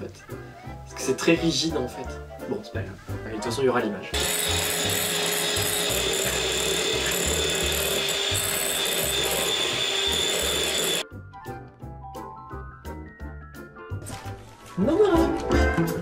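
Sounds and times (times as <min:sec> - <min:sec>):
music: 0:00.0 - 0:16.0
electric hand mixer running: 0:04.2 - 0:11.0.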